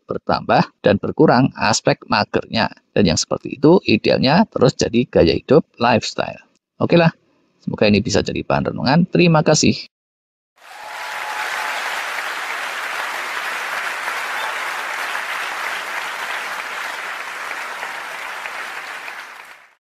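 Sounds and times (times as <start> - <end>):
audience applause: 10.6 - 19.8.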